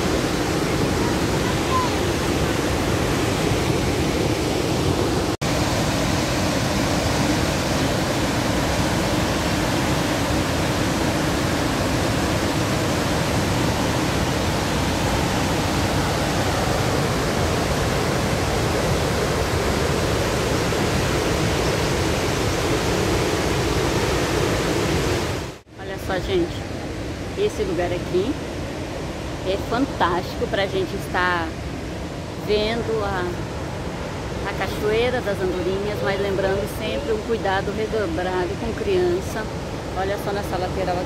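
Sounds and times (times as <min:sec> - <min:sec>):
waterfall rushing: 0:00.0 - 0:25.6, 0:26.6 - 0:41.0.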